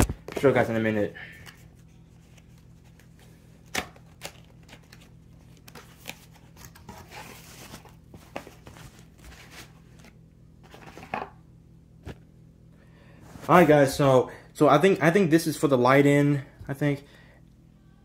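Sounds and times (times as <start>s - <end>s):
packaging rustling: 1.6s - 11.1s.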